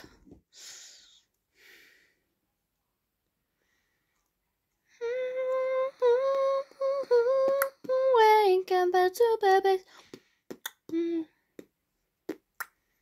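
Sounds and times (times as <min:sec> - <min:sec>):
girl humming a tune: 0:04.9 - 0:08.6, 0:10.9 - 0:11.4.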